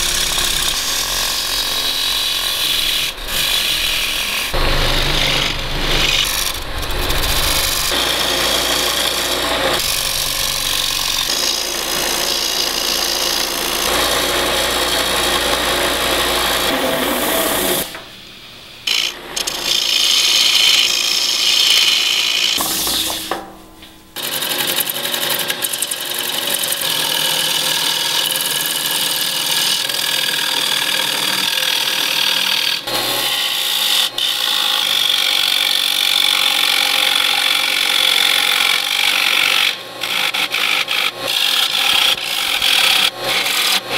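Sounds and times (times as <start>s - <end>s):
gouge scraping spinning wood: 0.0s - 18.0s, 18.9s - 23.3s, 37.8s - 43.9s.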